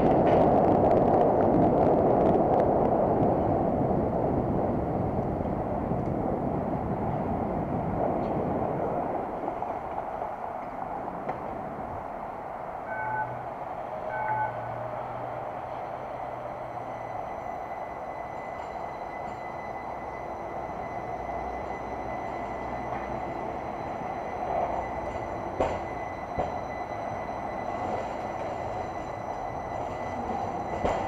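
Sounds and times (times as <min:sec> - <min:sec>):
low hum: 0:00.0 - 0:31.0
wind and bicycle road noise: 0:00.0 - 0:31.0
short electronic beeps: 0:12.9 - 0:13.4, 0:14.1 - 0:14.7.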